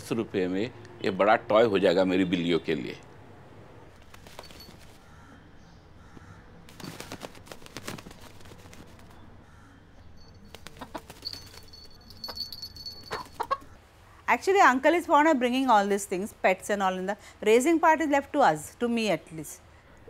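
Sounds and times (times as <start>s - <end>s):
rooster flapping wings: 3.9s - 5.0s, 6.7s - 9.2s, 10.4s - 12.0s.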